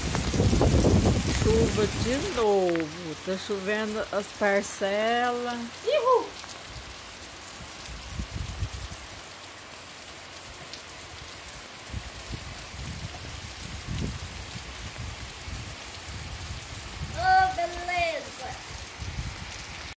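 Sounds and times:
low rumbling bumps: 0:00.0 - 0:03.8
heavy rain on paving: 0:00.0 - 0:19.9.

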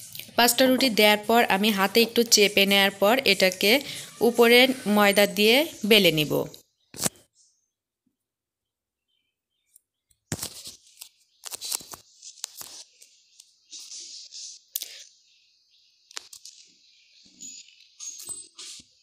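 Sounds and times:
rolling pin rubbing and scraping dough: 0:00.0 - 0:06.4.

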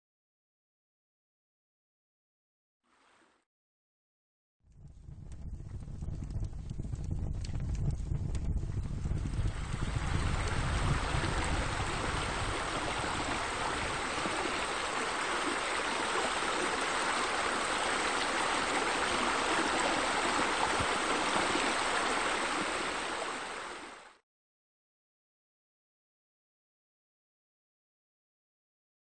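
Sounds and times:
water rushing and splashing: 0:09.4 - 0:24.2.

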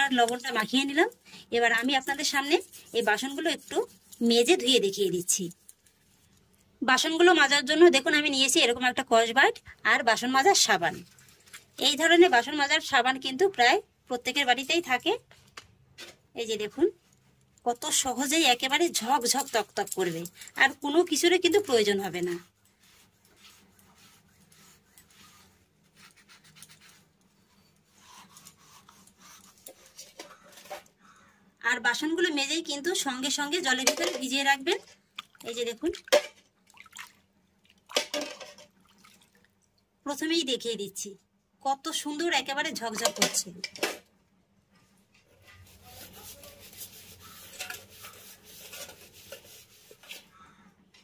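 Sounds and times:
scouring pad scrubbing pot: 0:01.7 - 0:05.6, 0:17.8 - 0:26.4, 0:45.4 - 0:50.3
sponge scrubbing brass tumbler: 0:02.0 - 0:05.2, 0:45.4 - 0:50.3.

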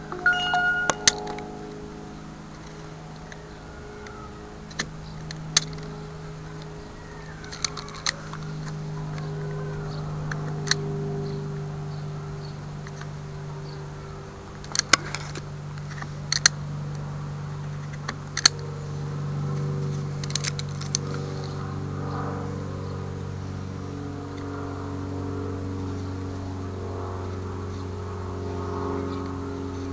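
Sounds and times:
low buzzing hum: 0:00.0 - 0:06.9.

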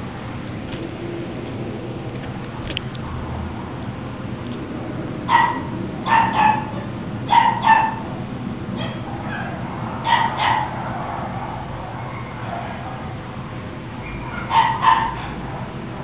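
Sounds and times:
puppy yapping: 0:05.3 - 0:08.1, 0:08.8 - 0:13.1, 0:14.0 - 0:15.7.

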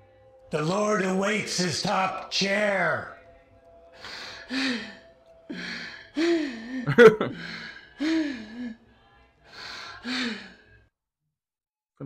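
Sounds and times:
person breathing hard: 0:04.0 - 0:08.8, 0:09.5 - 0:10.8.

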